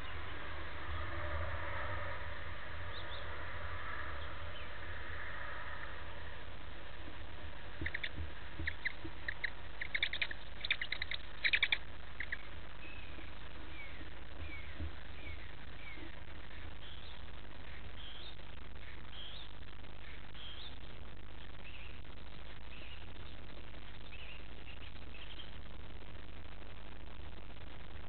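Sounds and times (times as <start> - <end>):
owl chicks hissing: 0.0 - 16.7
owl chicks chirping: 0.0 - 22.0
steady low hum: 0.0 - 28.0.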